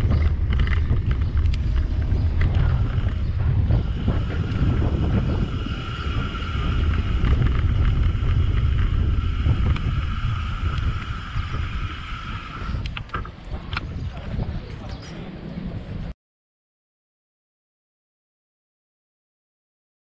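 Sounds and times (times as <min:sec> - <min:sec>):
high hum of moving bike: 0:00.0 - 0:16.1
wind buffeting microphone: 0:00.0 - 0:16.1.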